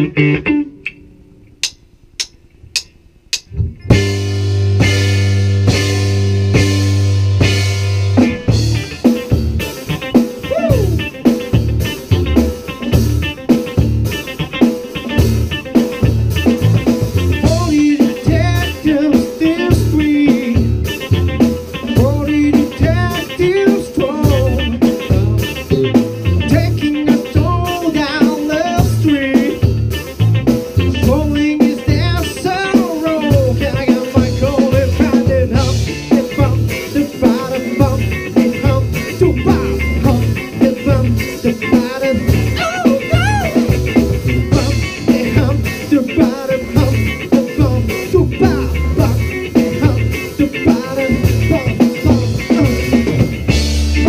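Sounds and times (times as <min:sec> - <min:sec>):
electric guitars: 0:00.0 - 0:02.8, 0:03.4 - 0:54.0
bass guitar: 0:00.0 - 0:54.0
drum kit: 0:00.8 - 0:54.0
person singing lead vocal: 0:10.4 - 0:11.2, 0:17.4 - 0:20.8, 0:21.8 - 0:29.7, 0:30.9 - 0:43.8, 0:44.5 - 0:53.2.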